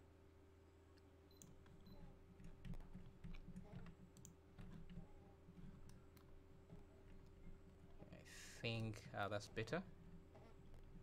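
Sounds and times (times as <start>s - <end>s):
low steady hum: 0.0s - 11.0s
computer mouse clicks: 1.0s - 6.3s.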